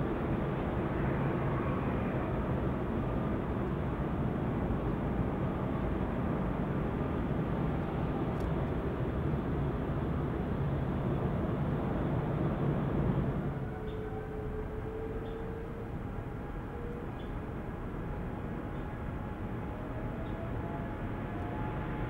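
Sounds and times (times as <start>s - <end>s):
jet engines steady noise: 0.0s - 22.0s.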